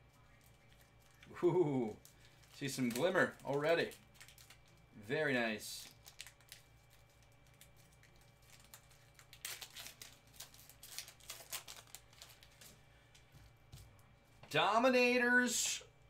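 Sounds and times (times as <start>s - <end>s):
foil pack crinkling: 1.9s - 4.9s, 5.7s - 12.8s.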